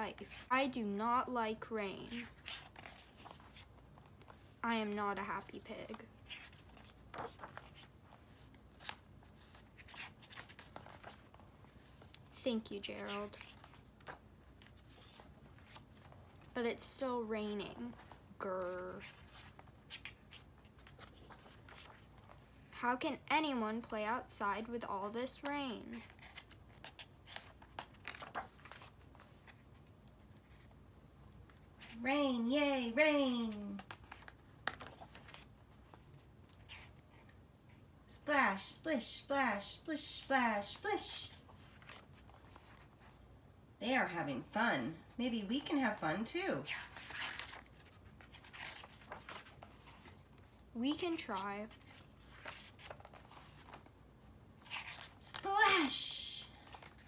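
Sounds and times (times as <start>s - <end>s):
book pages rustling: 1.9s - 16.6s, 17.5s - 22.8s, 25.2s - 32.0s, 33.2s - 37.9s, 40.0s - 43.4s, 46.6s - 57.0s.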